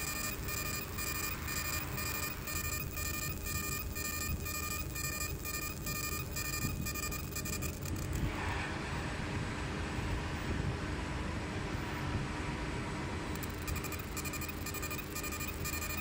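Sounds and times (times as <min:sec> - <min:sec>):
high-pitched pulsing laser tone: 0:00.0 - 0:08.1, 0:13.4 - 0:16.0
machine low hum: 0:00.0 - 0:16.0.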